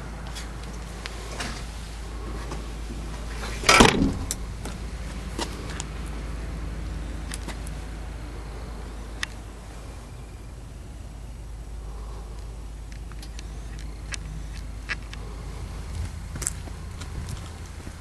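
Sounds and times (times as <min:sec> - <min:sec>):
car trunk lid slammed shut: 0:03.6 - 0:04.4.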